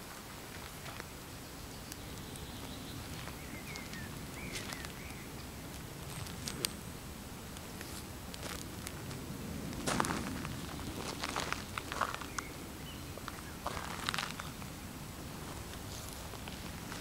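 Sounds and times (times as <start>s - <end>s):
outdoor background noise: 0.0s - 17.0s
bird chirping: 1.4s - 6.9s, 10.5s - 15.0s
footsteps on soft soil: 2.2s - 5.2s, 7.6s - 14.7s.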